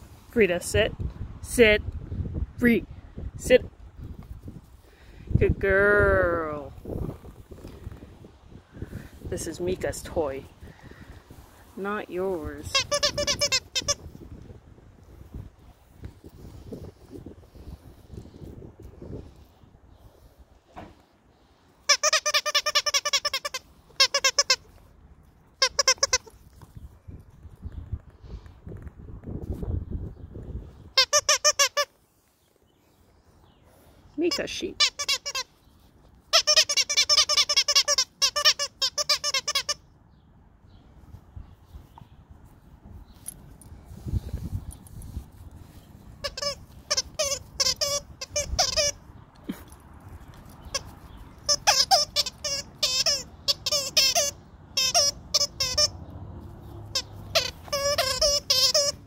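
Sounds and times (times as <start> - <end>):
toy squeaker squeaking: 12.6 - 14.1, 21.9 - 24.8, 25.6 - 26.4, 31.0 - 31.9, 34.3 - 35.6, 36.3 - 39.8, 46.2 - 49.0, 50.4 - 56.0, 56.9 - 59.0.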